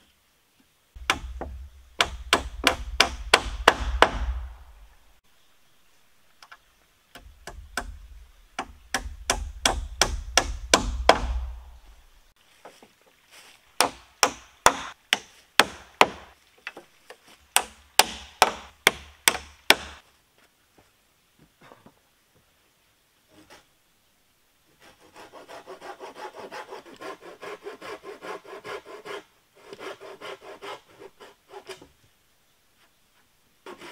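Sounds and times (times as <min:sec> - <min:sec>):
hammer driving nails: 0:01.0 - 0:04.6, 0:08.6 - 0:11.6.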